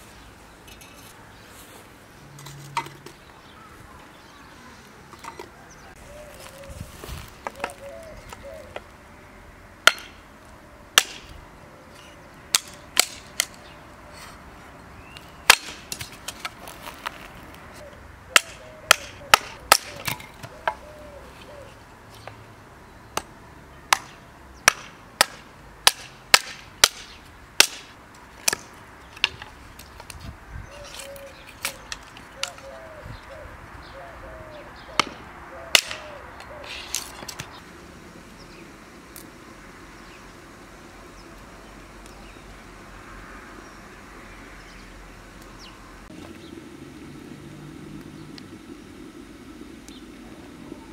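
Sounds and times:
hatchet splitting wood: 9.8 - 10.2, 11.0 - 11.3, 12.5 - 13.5, 15.5 - 16.6, 18.3 - 20.8, 23.9 - 29.5, 35.8 - 36.1.

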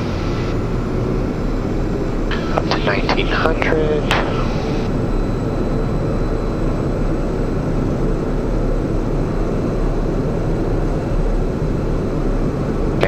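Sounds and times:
turboprop engine running: 0.0 - 13.0.

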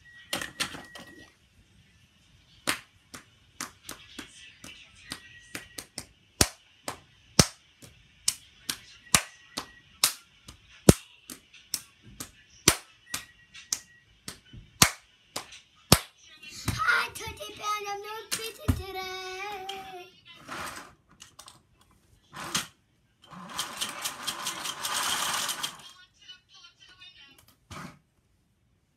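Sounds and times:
child clapping and slapping hands: 2.7 - 16.1, 18.3 - 19.0.

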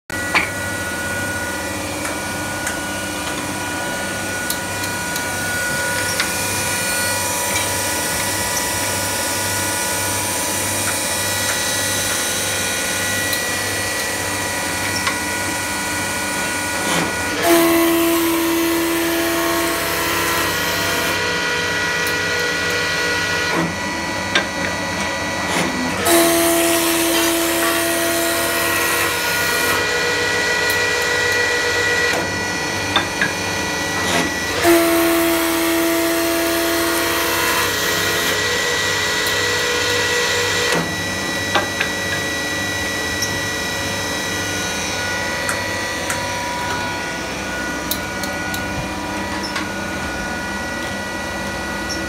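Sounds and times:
wood-turning lathe whine: 0.2 - 52.0
strong steady hum: 39.0 - 52.0.

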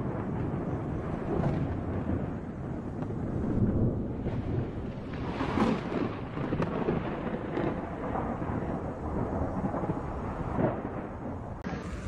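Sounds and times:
thunder rumbling: 0.0 - 12.0.

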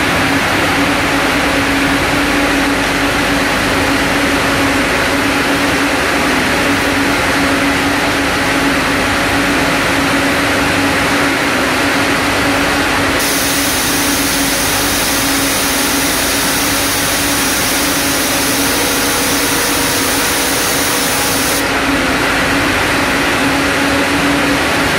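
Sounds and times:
steady hum: 0.0 - 24.9
high hiss: 13.2 - 21.8
spinning machine whirring: 13.2 - 21.9.

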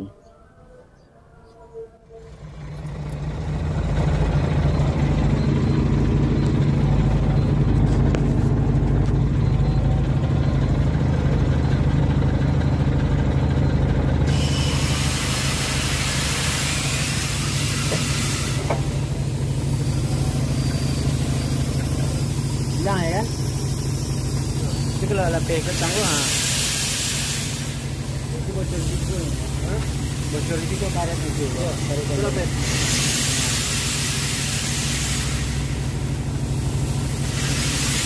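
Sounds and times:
diesel engine idling: 0.0 - 38.0
compressed air hissing: 14.3 - 38.0.

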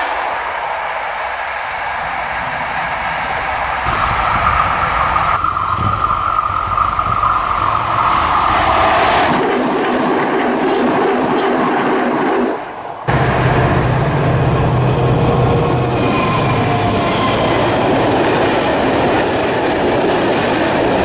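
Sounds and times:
steady whine: 0.0 - 10.1, 13.1 - 19.8
train passing on track: 0.0 - 21.0.

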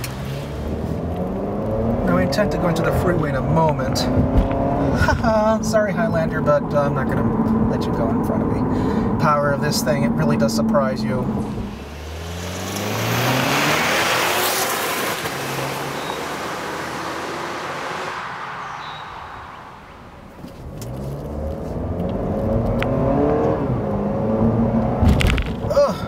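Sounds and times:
car engine accelerating: 0.0 - 25.9
tyre and wind noise: 3.7 - 5.4, 18.6 - 26.0.

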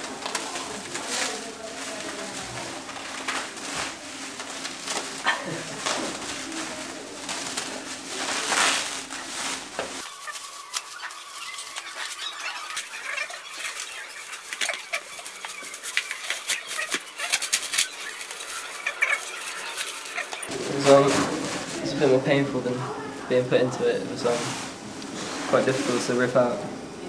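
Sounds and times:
plastic film crinkling and snapping: 0.0 - 20.5.

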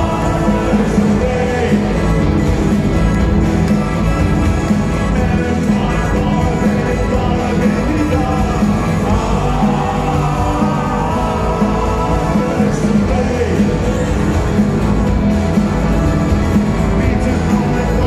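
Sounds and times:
man singing: 0.0 - 2.4, 5.0 - 14.7, 16.9 - 18.0
bass guitar: 0.0 - 18.0
drums: 0.0 - 18.0
electric guitar: 0.0 - 18.0
keyboard: 0.0 - 18.0.

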